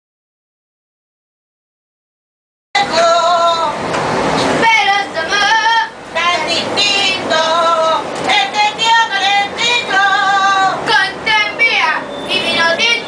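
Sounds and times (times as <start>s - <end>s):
woman singing unaccompanied: 2.8s - 3.8s, 4.6s - 13.0s
bus noise: 2.8s - 13.0s.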